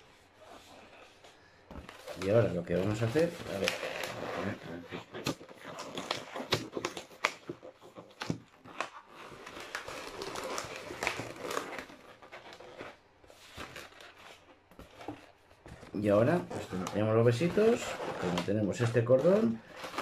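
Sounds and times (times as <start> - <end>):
rubber balloon squeaking: 2.0 - 13.0, 15.8 - 20.0.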